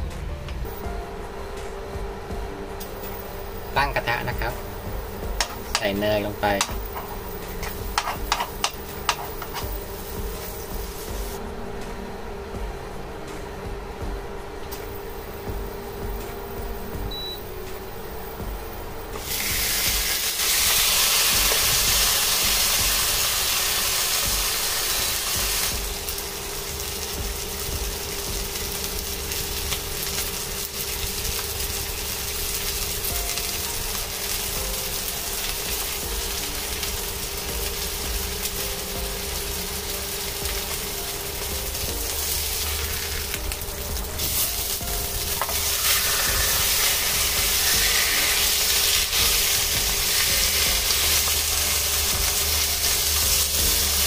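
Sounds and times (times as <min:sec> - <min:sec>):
steak sizzling in butter: 0:05.4 - 0:11.4, 0:19.2 - 0:54.0.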